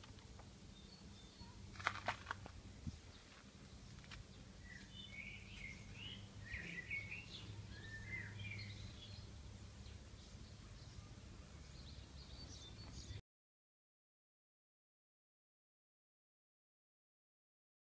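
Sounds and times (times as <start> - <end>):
small birds chirping: 0.2 - 13.2.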